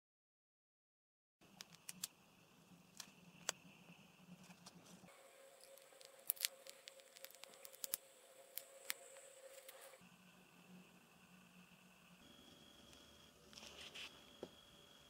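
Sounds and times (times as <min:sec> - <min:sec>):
faint steady hum: 0:01.4 - 0:15.0.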